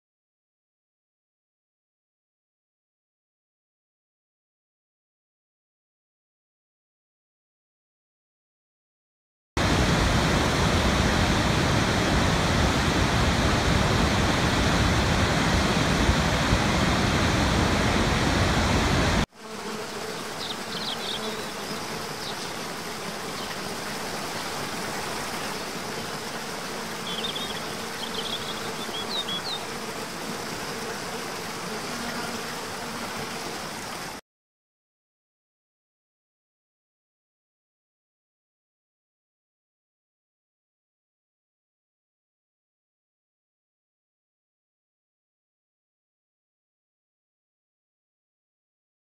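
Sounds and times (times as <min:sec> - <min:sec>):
forest cascade rushing: 0:09.6 - 0:19.3, 0:19.9 - 0:34.2
waterfall rushing: 0:09.6 - 0:19.3.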